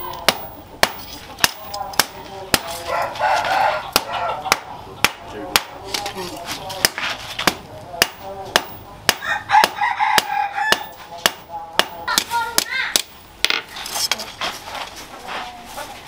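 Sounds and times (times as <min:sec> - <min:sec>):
rooster crowing: 0:02.9 - 0:04.5, 0:09.2 - 0:10.9
hammer striking metal on anvil: 0:06.8 - 0:12.3.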